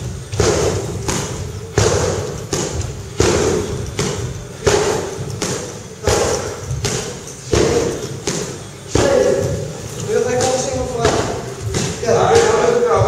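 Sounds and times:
knee strikes on punching bag: 0:00.3 - 0:09.4.

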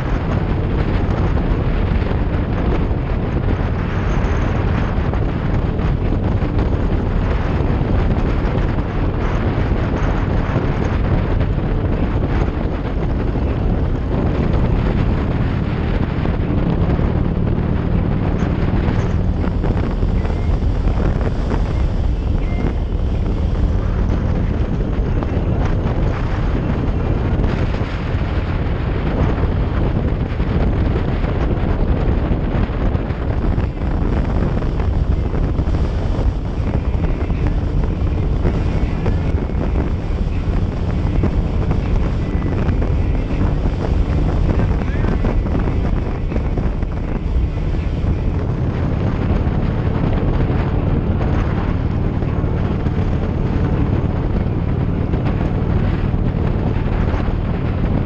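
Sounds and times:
road and vehicle noise: 0:00.0 - 0:58.0
wind buffeting microphone: 0:00.0 - 0:58.0.

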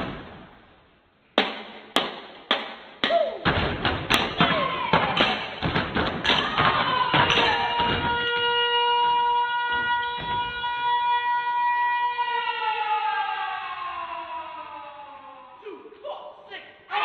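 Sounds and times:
siren-like tone: 0:08.2 - 0:12.2.

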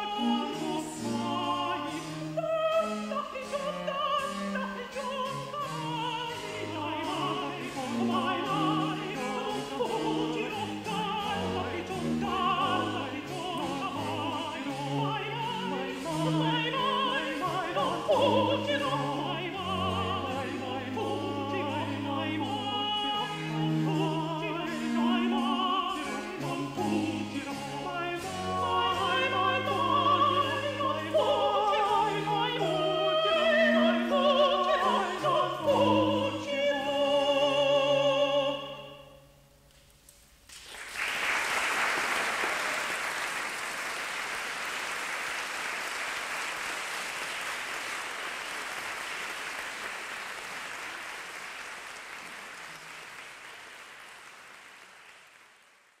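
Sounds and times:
female vocal duet: 0:00.0 - 0:39.1
harpsichord: 0:04.9 - 0:38.8
audience applauding: 0:40.5 - 0:56.0.

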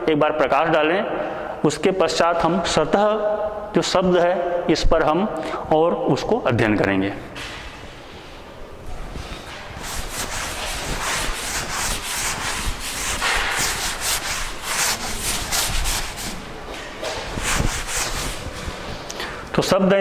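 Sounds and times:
duster rubbing on blackboard: 0:09.1 - 0:19.0.

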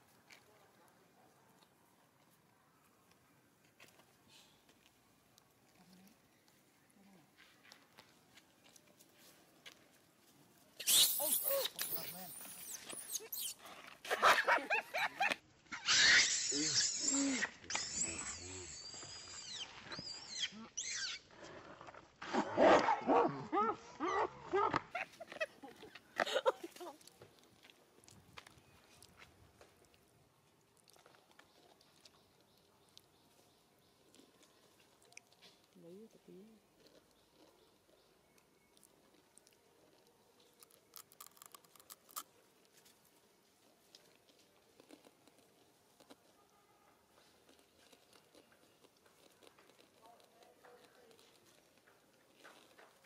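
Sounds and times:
young monkeys screaming: 0:10.8 - 0:13.6, 0:15.7 - 0:21.2
monkey chewing food: 0:24.9 - 0:46.4, 0:47.1 - 0:53.0.

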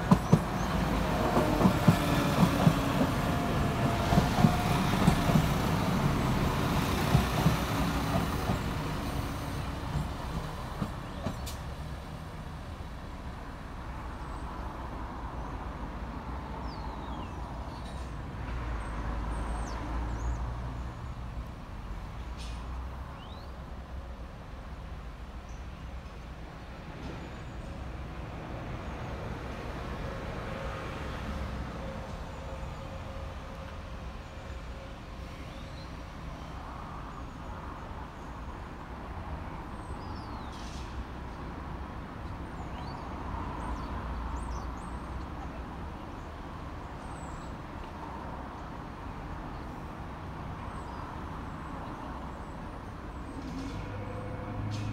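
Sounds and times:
diesel train engines idling: 0:00.0 - 0:14.2
diesel train engine rumbling: 0:00.0 - 0:54.9.

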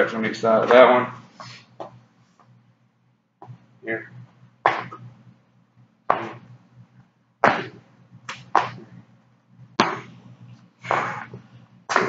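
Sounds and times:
low steady hum: 0:00.0 - 0:12.0
feet thudding on floor: 0:09.8 - 0:10.2.

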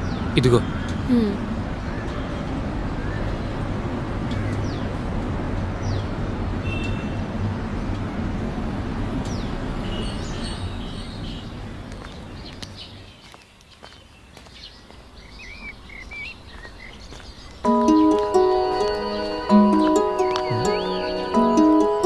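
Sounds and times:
street noise rumble and hiss: 0:00.0 - 0:22.0
bird chirps: 0:14.5 - 0:22.0.

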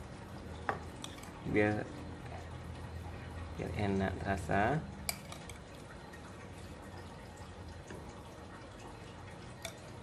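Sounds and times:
sauce trickling and dripping: 0:00.0 - 0:10.0
spoon clicking bowl: 0:05.1 - 0:05.6.

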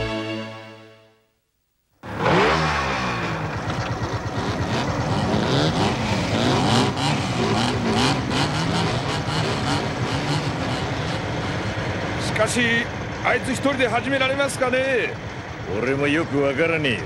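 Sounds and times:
motorcycle engines revving: 0:02.0 - 0:17.0.

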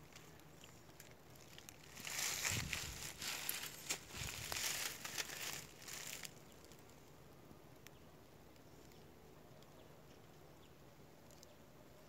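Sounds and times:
footsteps through dry grass: 0:01.2 - 0:06.9.

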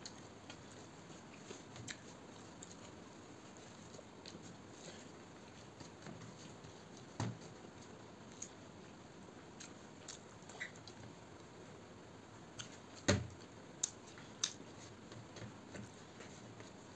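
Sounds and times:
chewing: 0:00.0 - 0:07.1, 0:09.6 - 0:11.0, 0:12.6 - 0:14.9.

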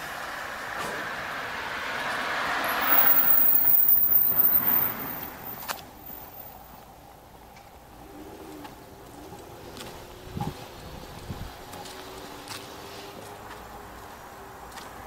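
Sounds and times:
car driving past: 0:00.0 - 0:06.4.

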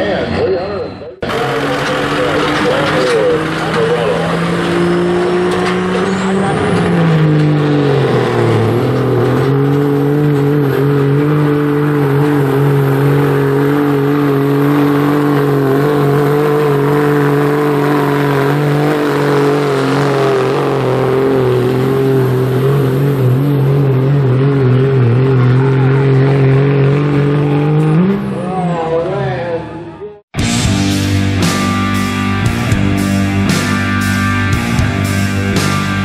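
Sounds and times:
diesel engine revving hard: 0:01.2 - 0:29.8, 0:30.4 - 0:36.0.

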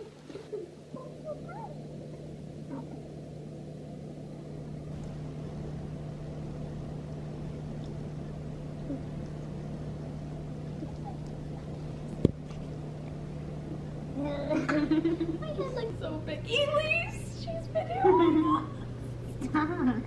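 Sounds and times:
low hum: 0:00.0 - 0:20.0
low rumbling room noise: 0:00.0 - 0:20.0.

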